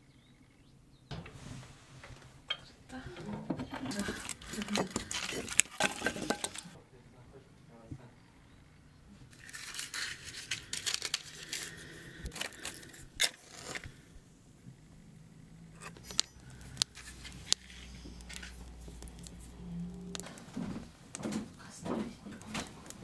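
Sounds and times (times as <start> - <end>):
rustling and scraping: 1.1 - 6.8, 9.1 - 14.2, 15.7 - 23.0
wood snapping and crackling: 1.1 - 6.8, 9.3 - 23.0.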